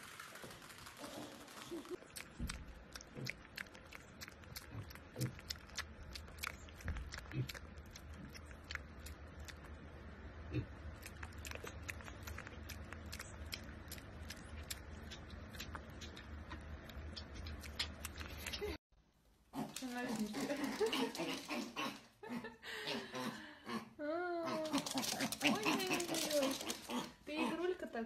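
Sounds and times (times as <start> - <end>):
low steady hum: 0.0 - 28.0
pig chewing and smacking: 0.2 - 18.8, 24.6 - 27.0.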